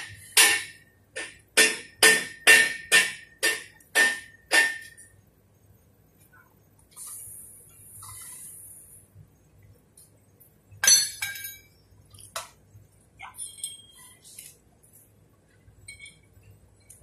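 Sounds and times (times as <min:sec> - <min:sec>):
metal clinking: 0:10.8 - 0:11.7.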